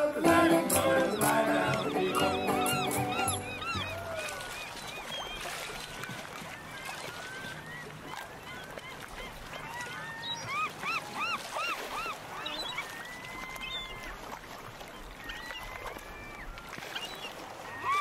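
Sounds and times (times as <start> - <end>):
birds calling: 0.0 - 5.6
whistled bird notes: 0.7 - 5.5.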